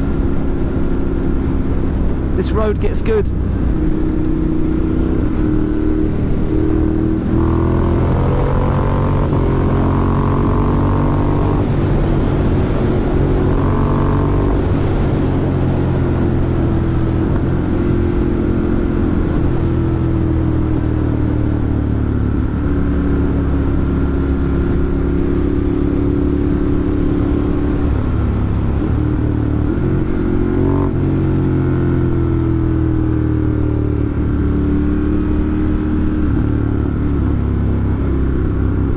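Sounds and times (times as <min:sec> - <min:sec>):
wind on microphone: 0:00.0 - 0:20.9
motorcycle engine: 0:00.0 - 0:38.9.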